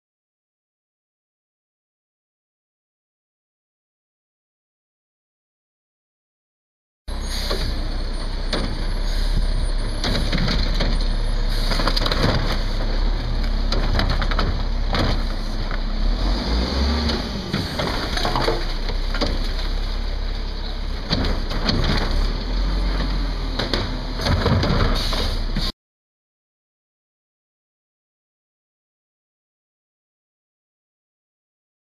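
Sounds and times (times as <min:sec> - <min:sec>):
diesel truck engine running: 0:07.1 - 0:25.7
carts and arm knocking and banging: 0:09.9 - 0:15.9, 0:16.8 - 0:25.7.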